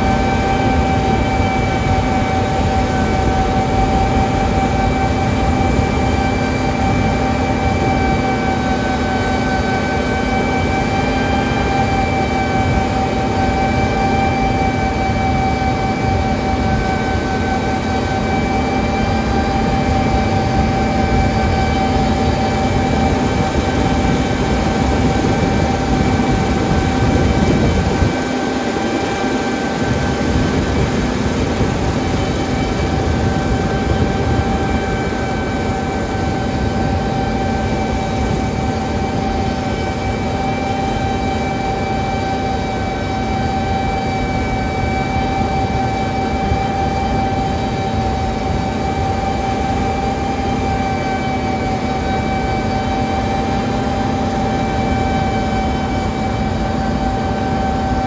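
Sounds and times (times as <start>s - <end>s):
high even whine: 0.0s - 40.4s
combine harvester drone: 0.0s - 58.0s.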